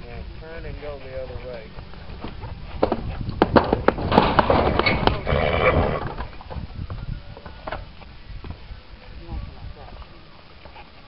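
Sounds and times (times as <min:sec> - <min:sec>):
horse hooves clicking and knocking: 0:00.4 - 0:06.7.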